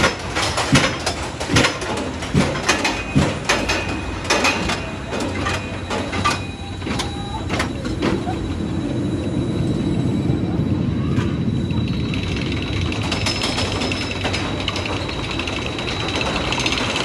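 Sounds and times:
rattling clicks: 0.0 - 8.3, 12.1 - 17.0
roller coaster clattering on track: 0.0 - 17.0.

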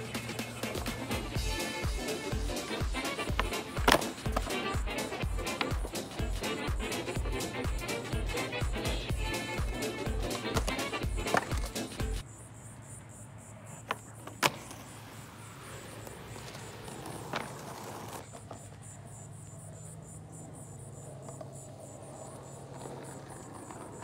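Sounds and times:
skateboard clacking on concrete: 0.0 - 12.2, 13.8 - 18.8, 20.8 - 24.0
faint insect buzzing: 0.0 - 24.0.

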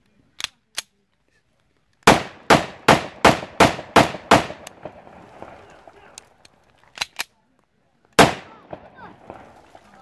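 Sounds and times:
pistol shots with echo: 2.1 - 5.6, 8.2 - 9.7.

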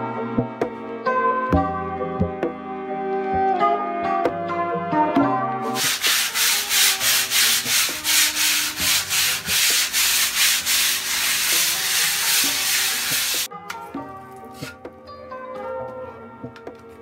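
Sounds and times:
sandpaper scratching on a wall: 5.7 - 13.5.

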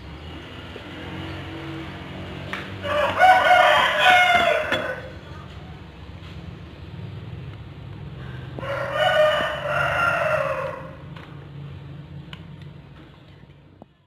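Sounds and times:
rooster crowing: 2.8 - 5.1, 8.6 - 11.1.

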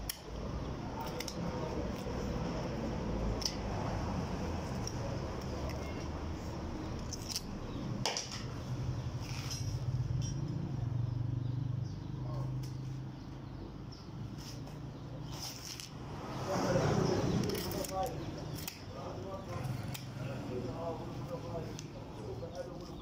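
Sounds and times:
blade clicking on bone: 0.0 - 2.6, 7.0 - 7.8, 17.3 - 20.2
knife cutting and scraping meat: 16.8 - 18.8.

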